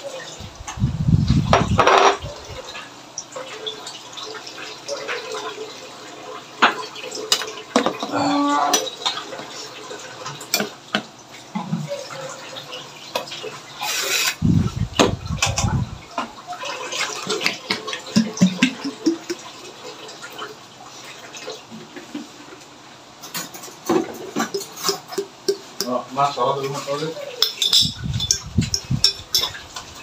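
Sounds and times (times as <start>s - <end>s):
metal spoon clinking against bowl: 24.4s - 26.0s, 27.4s - 29.6s
syrup dripping through strainer: 24.4s - 26.2s.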